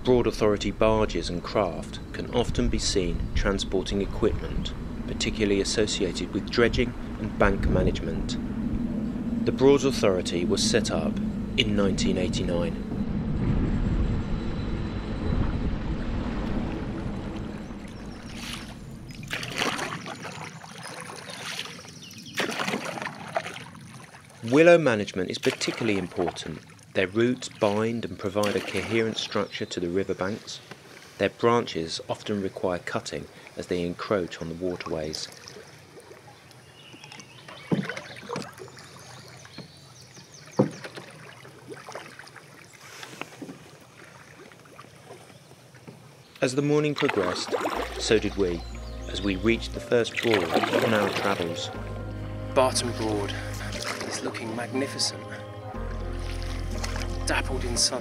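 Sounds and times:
low rumble: 0:00.0 - 0:20.2, 0:47.7 - 0:49.9, 0:51.7 - 0:57.9
paddle strokes splashing water: 0:16.2 - 0:31.3, 0:33.3 - 0:51.9, 0:52.6 - 0:58.0.

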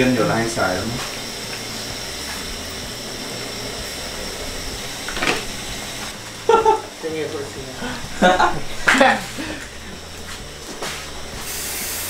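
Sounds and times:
potatoes sizzling in a frying pan: 0:04.9 - 0:12.0.

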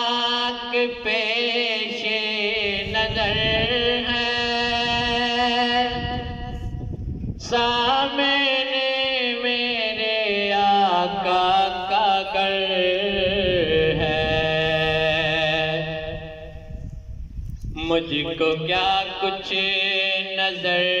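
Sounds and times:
man singing unaccompanied: 0:00.0 - 0:06.7, 0:07.4 - 0:16.7, 0:17.7 - 0:21.0.

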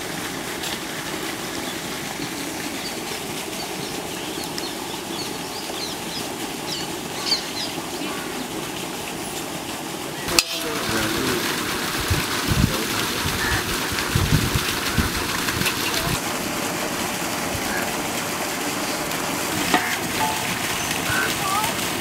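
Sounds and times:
small birds chirping: 0:02.3 - 0:08.5.

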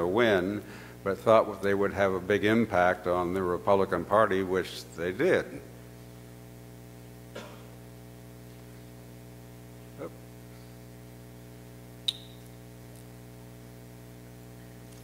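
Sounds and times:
low electrical hum: 0:00.0 - 0:15.0
sharp click: 0:12.1 - 0:12.6.

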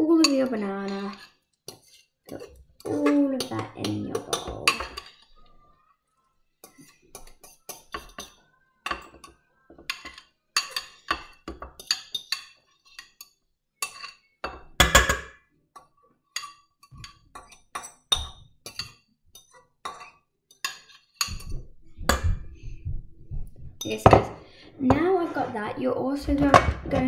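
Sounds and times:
metal spoon clinking on bowl: 0:00.2 - 0:05.5, 0:06.6 - 0:22.3.

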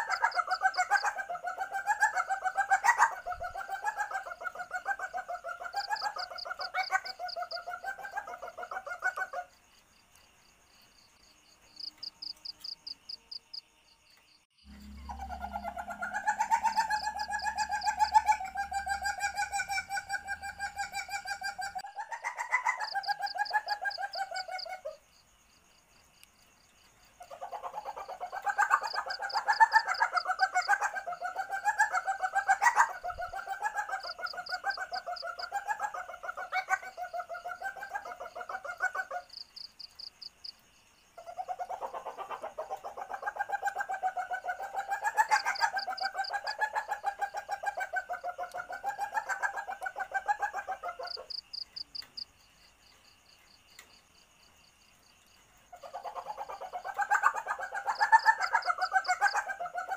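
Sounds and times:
cricket trills: 0:00.0 - 0:59.9
civet chattering calls: 0:14.7 - 0:24.7.

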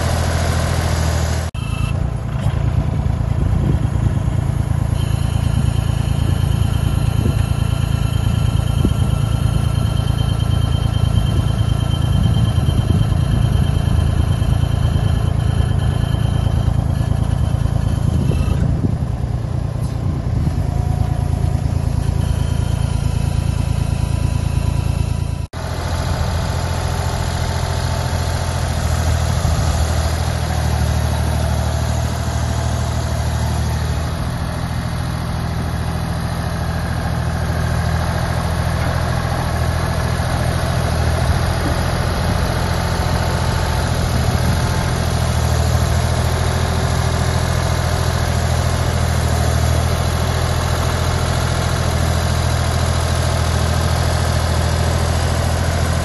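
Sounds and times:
diesel engine droning: 0:00.0 - 0:56.0.

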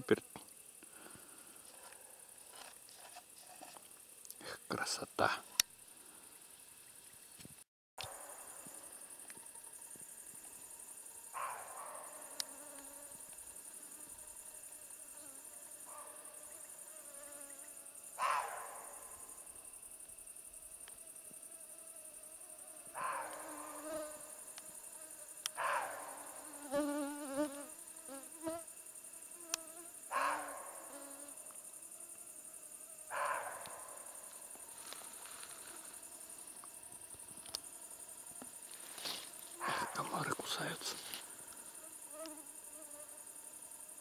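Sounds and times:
mosquitoes whining: 0:10.9 - 0:18.4, 0:21.4 - 0:28.6, 0:29.3 - 0:40.3.

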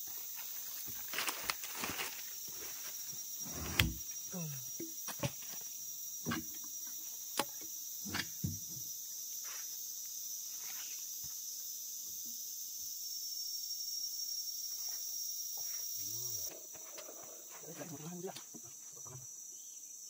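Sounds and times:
insects chirping: 0:00.0 - 0:20.0.

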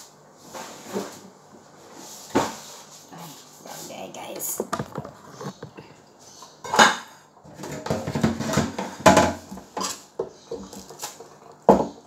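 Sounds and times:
kitchenware rattling: 0:06.7 - 0:12.0.

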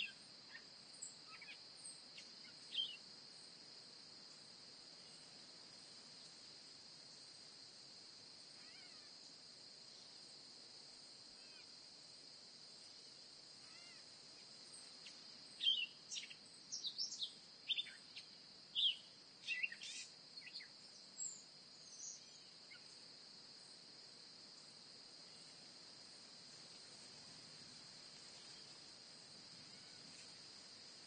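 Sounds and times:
bird chirps: 0:02.7 - 0:03.0, 0:15.6 - 0:22.8.

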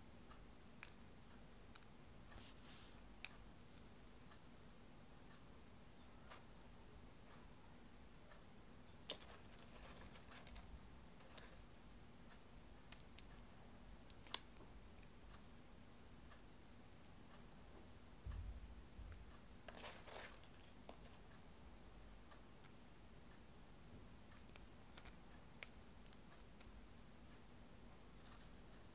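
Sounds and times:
loose pieces rattling: 0:09.1 - 0:11.6.

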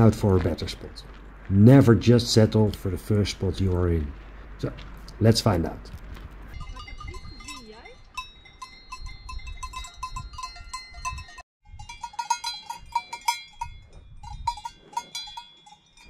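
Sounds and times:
cow bells clanking: 0:06.5 - 0:16.0.

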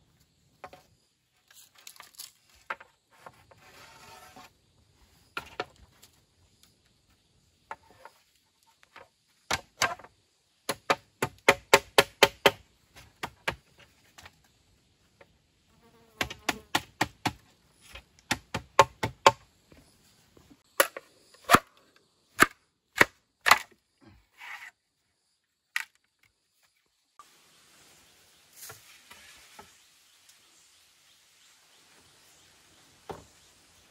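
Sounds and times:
machete chopping bamboo: 0:09.5 - 0:13.8, 0:16.2 - 0:19.4, 0:20.7 - 0:23.8.

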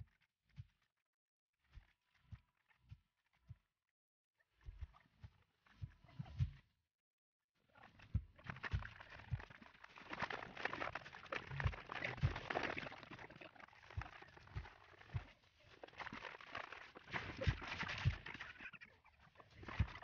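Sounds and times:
water splashing in a basin: 0:08.4 - 0:18.7
brush scrubbing plastic: 0:09.6 - 0:18.7.

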